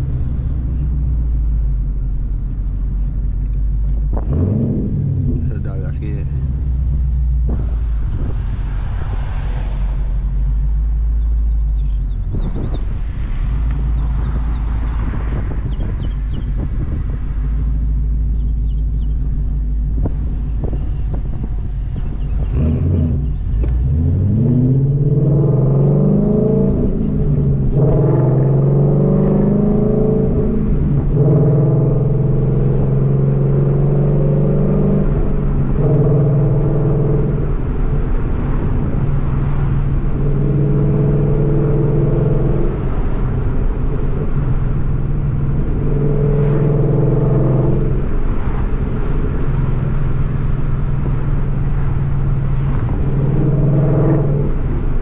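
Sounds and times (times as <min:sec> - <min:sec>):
car engine idling: 0:00.0 - 0:24.2
car engine accelerating: 0:00.0 - 0:55.0.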